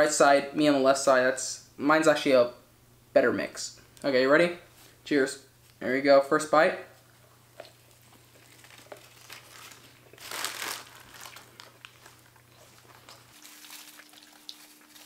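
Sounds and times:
faint chewing: 7.0s - 15.0s
paper wrappers crinkling: 7.6s - 15.0s.

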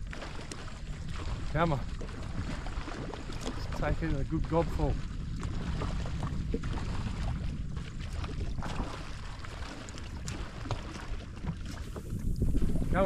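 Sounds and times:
water sloshing: 0.0s - 13.0s
wind buffeting microphone: 0.0s - 13.0s.

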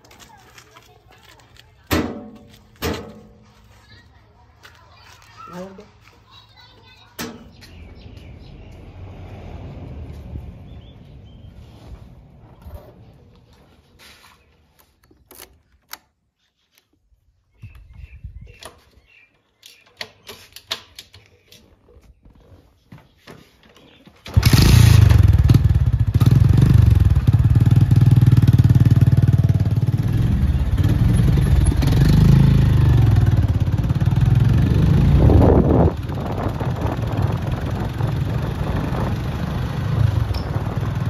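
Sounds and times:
motorcycle engine starting and running: 23.8s - 41.0s.

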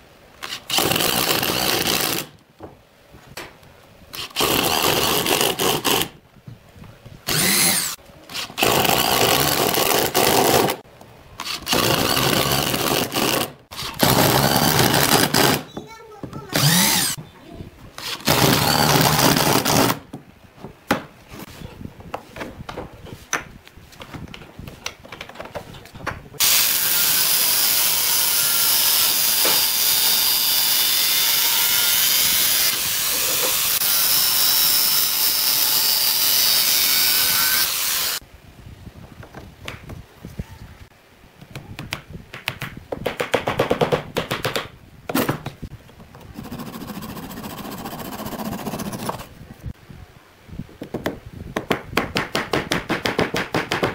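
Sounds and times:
cordless drill: 0.5s - 2.3s, 4.2s - 6.1s, 7.3s - 10.8s, 11.4s - 15.6s, 16.5s - 17.2s, 18.0s - 20.0s
angle grinder running: 16.6s - 17.2s
hand saw on wood: 46.4s - 49.3s.

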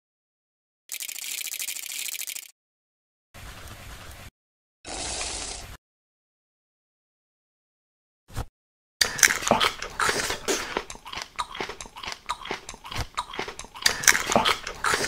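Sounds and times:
crunchy food chewing: 9.0s - 15.0s.

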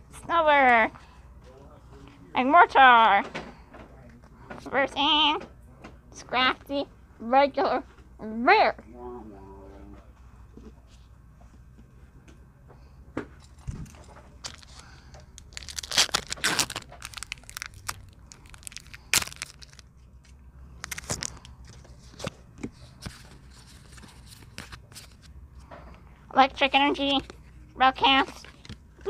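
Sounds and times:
foil wrapper tearing and crinkling: 14.4s - 21.5s.

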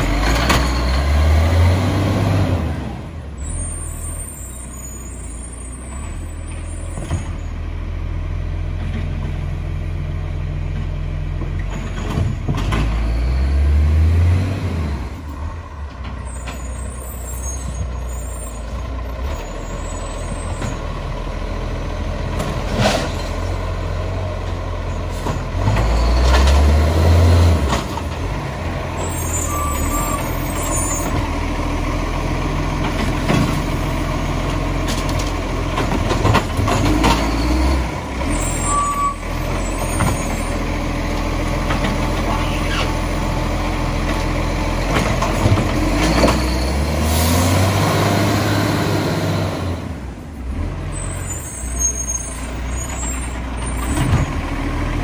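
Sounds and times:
garbage truck diesel engine revving: 0.0s - 3.9s, 12.4s - 15.6s, 18.8s - 55.0s
short beeps: 29.4s - 30.2s.

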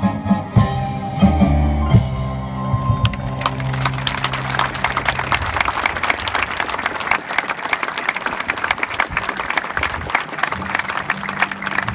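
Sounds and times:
audience applauding: 3.0s - 11.9s.

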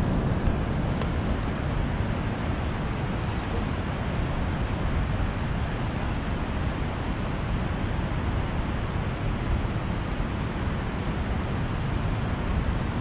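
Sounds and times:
wind blowing across microphone: 0.0s - 13.0s.

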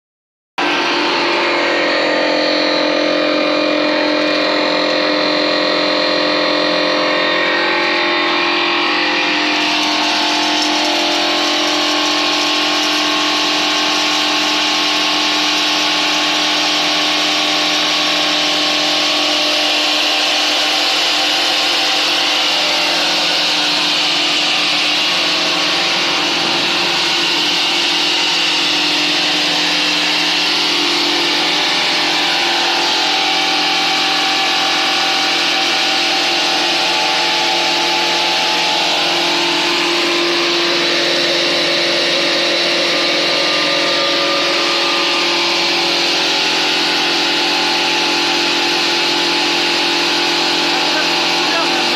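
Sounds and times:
grinder motor hum: 0.6s - 51.9s.

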